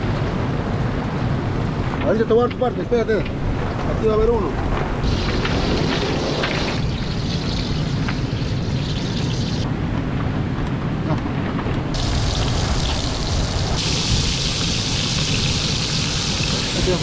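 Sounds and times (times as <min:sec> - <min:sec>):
hot oil sizzling in a wok: 0:05.0 - 0:09.6, 0:12.0 - 0:17.0.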